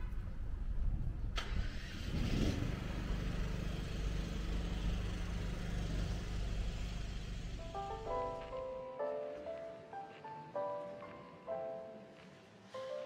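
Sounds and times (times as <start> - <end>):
low outdoor rumble: 0.0 - 8.6.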